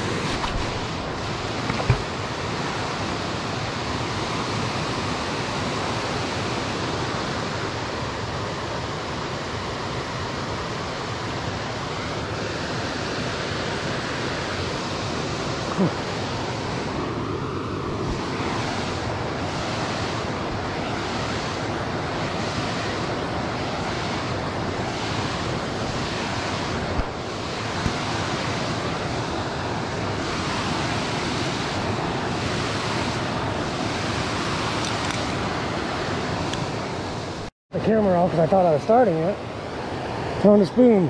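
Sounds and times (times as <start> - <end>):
wind buffeting microphone: 17.8 - 37.5.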